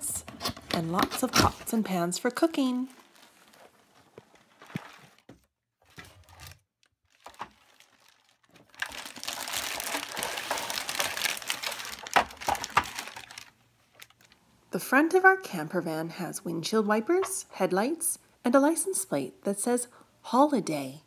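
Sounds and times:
plastic bag crinkling: 0:00.6 - 0:14.4.

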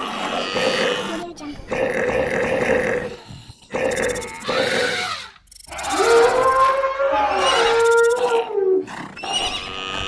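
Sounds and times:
rough noisy animal call: 0:02.1 - 0:10.0
pitched animal call: 0:02.6 - 0:10.0.

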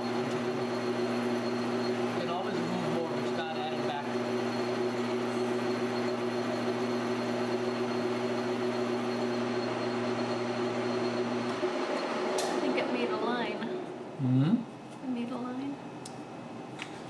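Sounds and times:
metal lathe running: 0:00.0 - 0:13.5.

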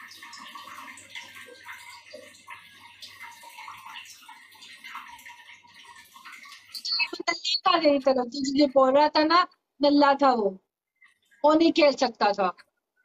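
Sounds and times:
running and splashing water: 0:00.0 - 0:08.7.

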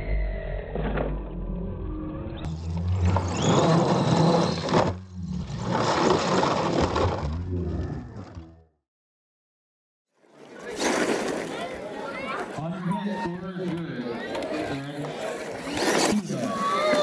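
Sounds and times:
toy truck motors whining: 0:02.4 - 0:05.0
tyres scraping on gravel: 0:02.5 - 0:07.4.

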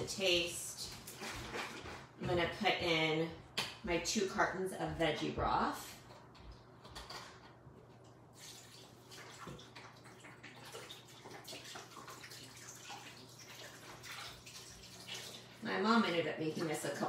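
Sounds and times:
liquid pouring and splashing: 0:08.3 - 0:15.6.

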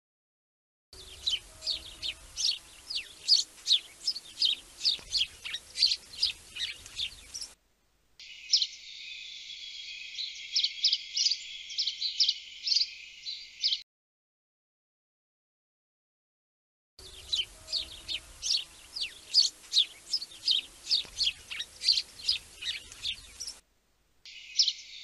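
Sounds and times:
small birds chirping: 0:01.0 - 0:07.6, 0:08.2 - 0:13.8, 0:17.0 - 0:23.6, 0:24.3 - 0:25.0.

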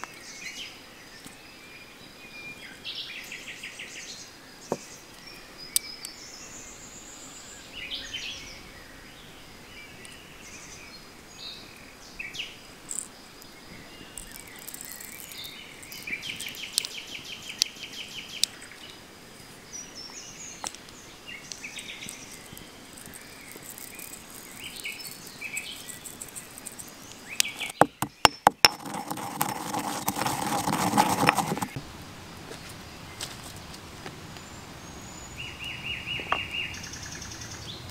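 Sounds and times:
birds chirping: 0:00.0 - 0:31.8, 0:34.3 - 0:37.9
insect trill: 0:12.6 - 0:19.6, 0:20.3 - 0:31.1
pestle grinding spices: 0:22.3 - 0:26.9, 0:27.5 - 0:31.8
pestle knocking in stone mortar: 0:27.6 - 0:31.8.

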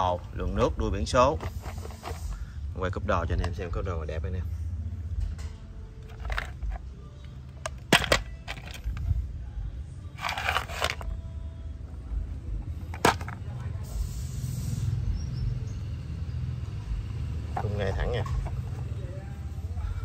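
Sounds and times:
plastic parts clacking: 0:01.2 - 0:02.3, 0:06.0 - 0:09.1, 0:10.2 - 0:11.2, 0:12.8 - 0:13.4
plastic rustling scrape: 0:01.4 - 0:02.4, 0:10.2 - 0:11.1.

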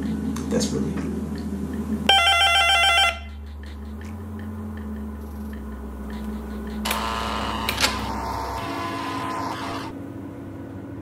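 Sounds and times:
low steady hum: 0:00.0 - 0:11.0
door intercom buzzing: 0:06.8 - 0:09.9.

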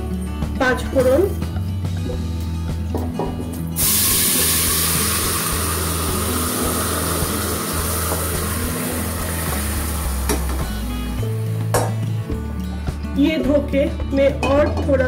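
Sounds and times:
food sizzling in hot oil: 0:03.8 - 0:11.8.

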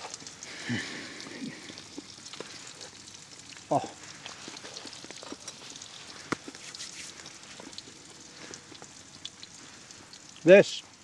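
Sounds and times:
steak sizzling in a pan: 0:00.0 - 0:11.0.

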